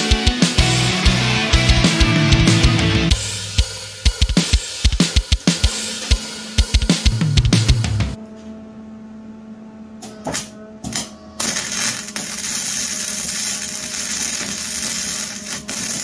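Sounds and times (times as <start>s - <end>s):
electric arc welding crackle: 11.4s - 16.0s.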